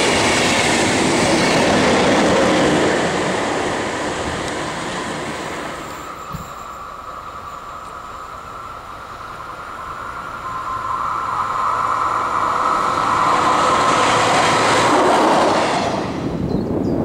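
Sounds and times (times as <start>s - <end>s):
rail vehicle running on track: 0.0s - 17.0s
steady high tone: 2.8s - 15.9s.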